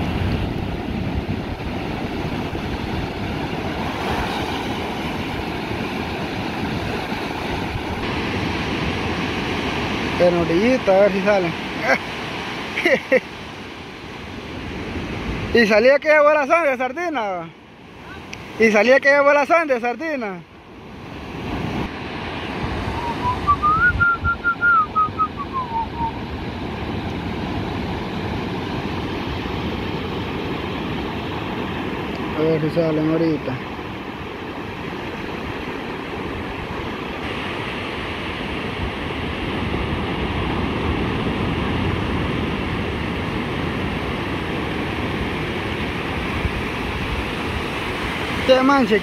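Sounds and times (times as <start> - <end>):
ocean surf breaking: 0.0 - 49.0
person whistling a tune: 23.0 - 26.2.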